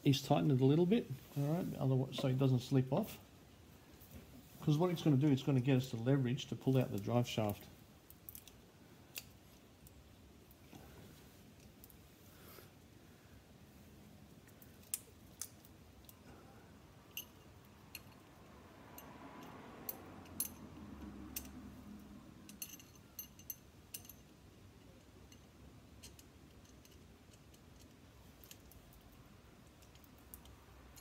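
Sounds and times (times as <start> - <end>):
metallic clicks and ticks: 22.4 - 31.0.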